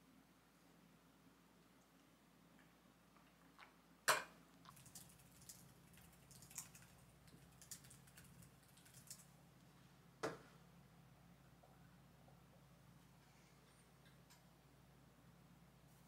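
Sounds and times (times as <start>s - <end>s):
typing on a keyboard: 4.9s - 9.3s.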